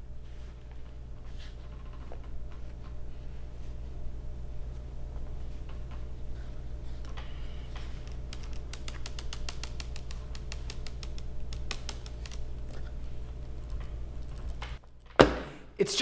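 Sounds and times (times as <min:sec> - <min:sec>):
low room hum: 0:00.0 - 0:16.0
pen clicking in fingers: 0:08.0 - 0:12.4.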